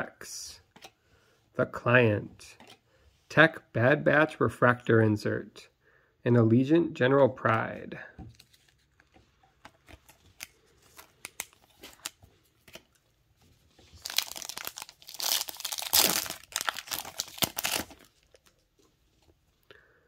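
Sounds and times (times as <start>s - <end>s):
plastic wrapper tearing open: 9.8s - 13.0s, 13.8s - 18.6s.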